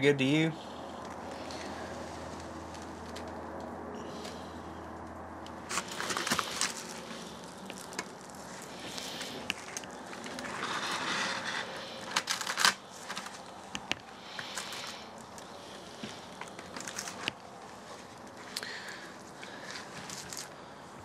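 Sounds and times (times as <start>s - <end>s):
aluminium foil crinkling: 5.6s - 13.7s, 14.3s - 20.6s.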